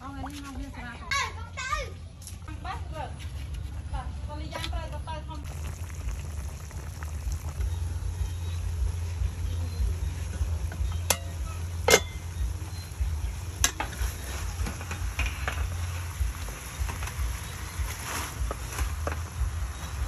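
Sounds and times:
low rumble: 5.0s - 20.0s
metal spatula clinking on wok: 11.1s - 12.3s.

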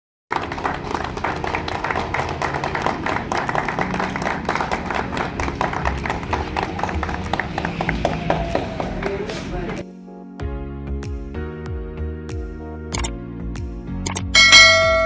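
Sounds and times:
group of people clapping: 0.3s - 9.8s.

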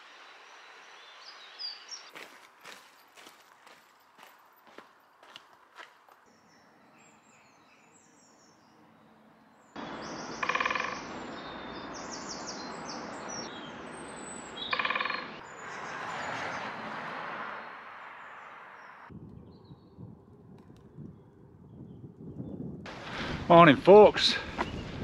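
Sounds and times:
birds singing: 0.2s - 3.8s, 6.3s - 16.7s.

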